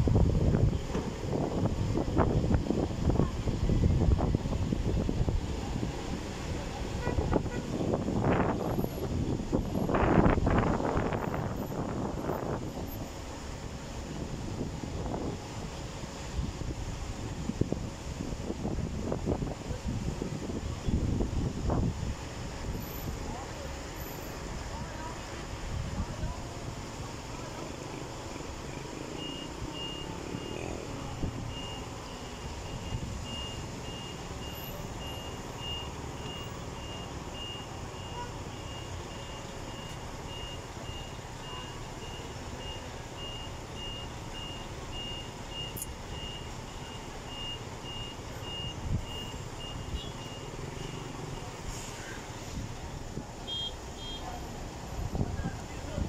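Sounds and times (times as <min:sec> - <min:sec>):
engines rumbling: 0:00.0 - 0:56.0
reversing alarm beeping: 0:29.1 - 0:51.5.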